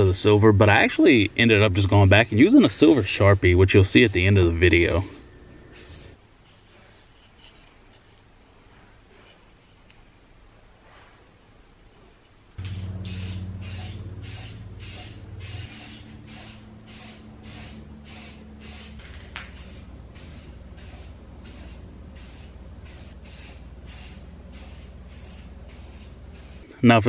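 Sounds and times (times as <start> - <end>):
spray paint can hissing: 5.8 - 6.2, 12.6 - 26.6
low hum: 12.6 - 23.1.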